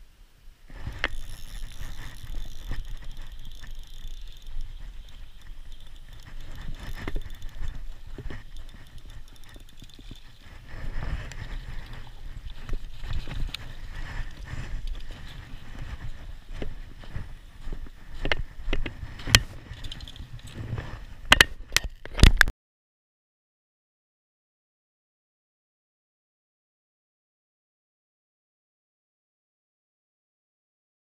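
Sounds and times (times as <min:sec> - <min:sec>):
clothing rubbing on camera: 0:00.7 - 0:21.2
footsteps crunching in snow: 0:00.7 - 0:21.3.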